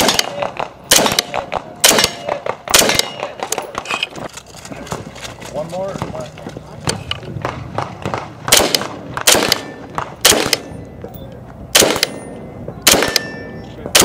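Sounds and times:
rifle gunshots echoing: 0.0s - 4.0s, 7.4s - 10.8s, 11.7s - 14.0s.

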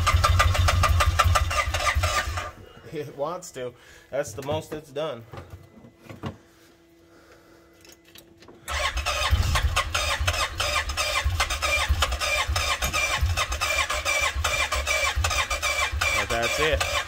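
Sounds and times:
electric starter cranking engine: 0.0s - 2.6s, 8.7s - 17.0s.

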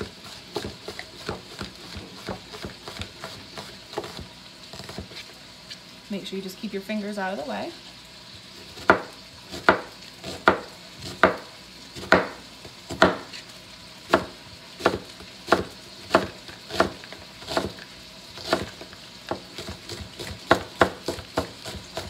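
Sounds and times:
knife chopping onion on board: 0.0s - 5.2s, 8.6s - 13.5s, 14.1s - 17.8s, 18.4s - 22.0s
chicken sizzling in pan: 0.0s - 22.0s.

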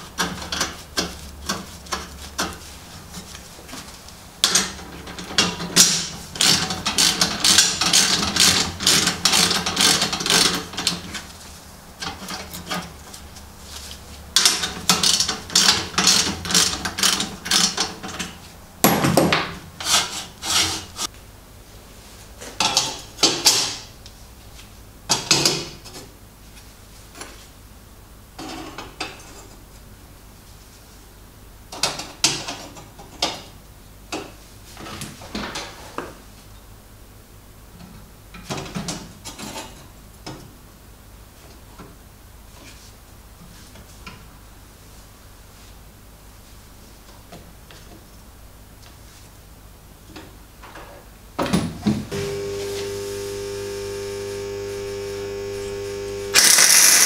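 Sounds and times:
ratchet wrench clicking: 56.4s - 57.0s.

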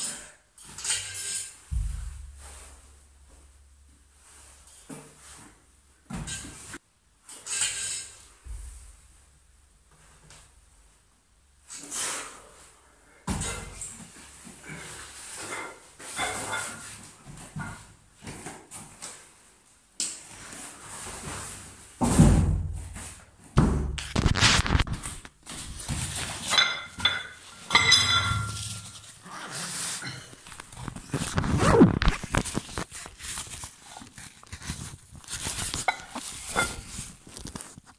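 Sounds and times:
rustling: 24.0s - 37.9s.

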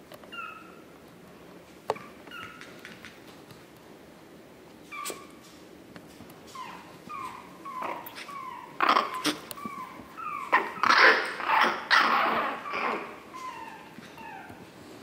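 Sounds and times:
puppies yapping and growling: 0.2s - 0.8s, 2.0s - 3.0s, 4.8s - 5.5s, 6.5s - 15.0s
puppies squeaking: 0.3s - 0.8s, 2.0s - 3.0s, 4.9s - 5.5s, 6.5s - 14.6s.

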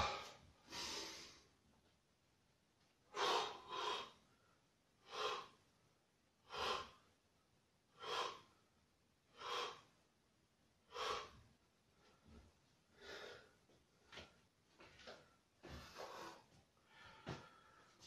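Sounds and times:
man's forceful breaths: 0.0s - 1.4s, 3.1s - 4.4s, 5.0s - 5.6s, 6.4s - 7.1s, 7.9s - 8.6s, 9.3s - 10.0s, 10.8s - 11.4s, 12.0s - 14.3s, 15.6s - 18.0s.

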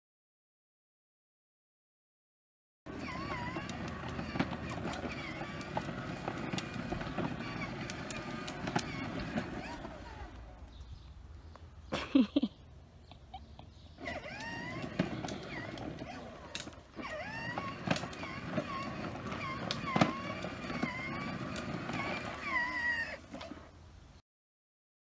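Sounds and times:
plastic wheels rolling on concrete: 2.9s - 11.1s, 13.9s - 23.8s
wheels clicking over joints: 2.9s - 11.1s, 13.9s - 23.8s.

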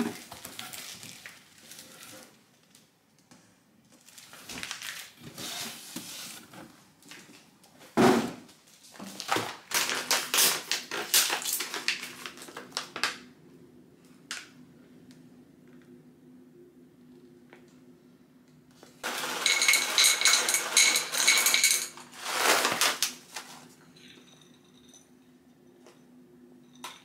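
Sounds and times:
plastic packaging crinkling: 0.0s - 2.8s, 4.0s - 5.2s, 9.0s - 13.2s, 19.0s - 23.7s.

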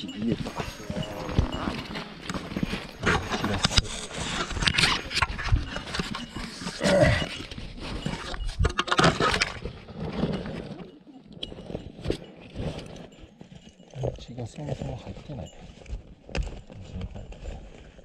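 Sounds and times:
camera rubbing against clothing: 0.2s - 18.0s
footsteps on rock: 0.3s - 7.7s.

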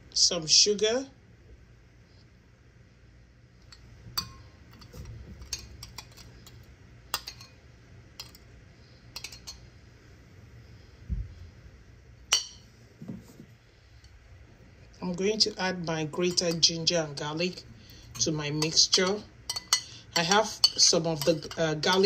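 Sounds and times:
metal spoon clinking on glass bowl: 3.7s - 6.3s, 7.1s - 7.6s, 9.2s - 9.6s, 12.3s - 12.6s, 18.1s - 22.0s.

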